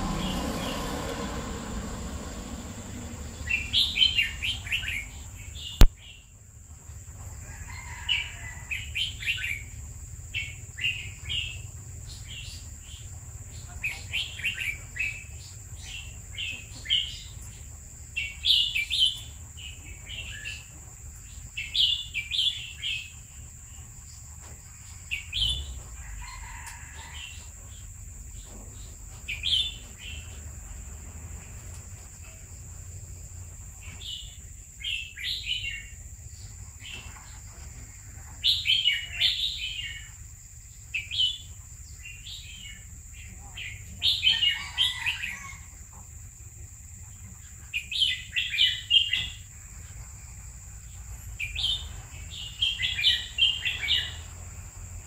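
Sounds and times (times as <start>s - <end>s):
bird singing chirpy phrases: 3.2s - 6.3s, 38.2s - 40.1s, 40.9s - 45.5s, 51.4s - 54.3s.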